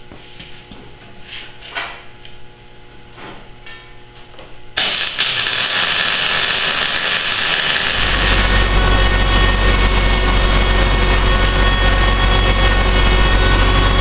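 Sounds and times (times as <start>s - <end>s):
power tool grinding steel: 4.8s - 9.2s
low rumble: 6.6s - 14.0s.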